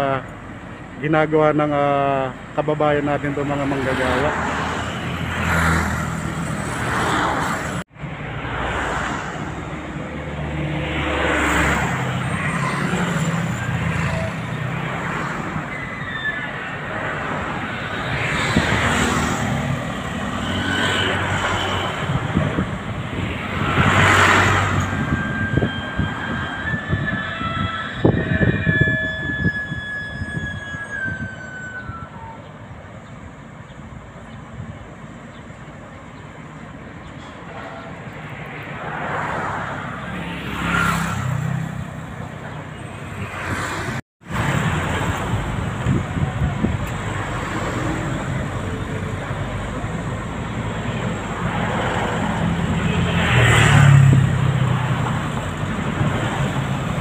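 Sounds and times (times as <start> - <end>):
excavator engines: 0.0 - 57.0
traffic rumble: 0.0 - 57.0
motorcycles and cars passing: 17.1 - 26.1, 38.1 - 57.0
high tone sliding down: 24.1 - 32.4.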